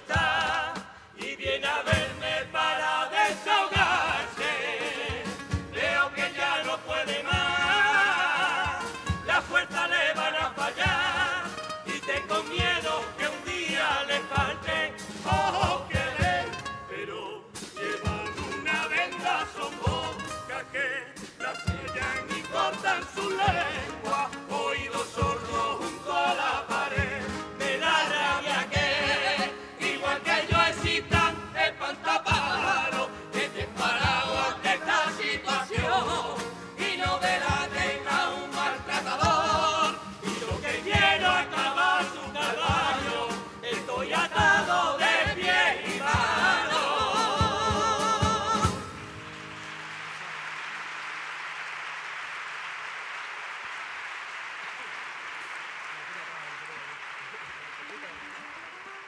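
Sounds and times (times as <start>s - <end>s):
male choir singing in harmony: 0.0s - 49.1s
drum strikes: 0.0s - 49.6s
acoustic guitar: 0.0s - 50.6s
applause: 48.6s - 59.0s.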